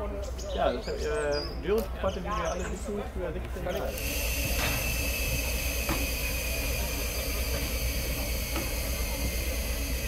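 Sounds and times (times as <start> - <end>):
train rumbling: 3.9 - 10.0.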